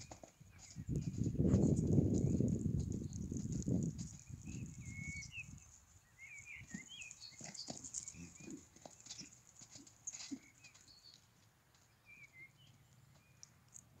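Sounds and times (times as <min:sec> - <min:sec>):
faint hoofbeats on gravel: 0:00.0 - 0:14.0
bird chirps: 0:04.2 - 0:09.4, 0:11.8 - 0:13.8.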